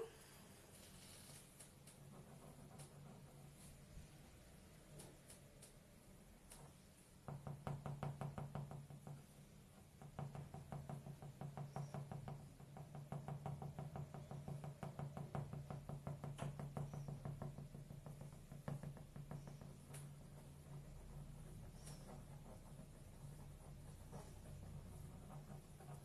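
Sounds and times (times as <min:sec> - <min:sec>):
fast mechanical knocking: 0:10.0 - 0:26.0.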